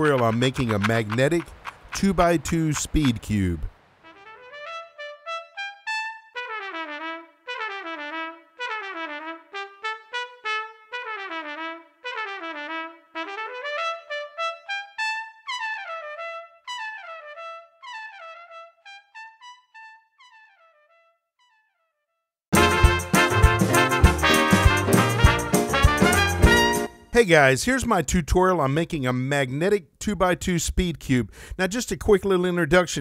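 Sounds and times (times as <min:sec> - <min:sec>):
trumpet melody of quick notes: 0:04.0 - 0:21.6, 0:22.5 - 0:27.2.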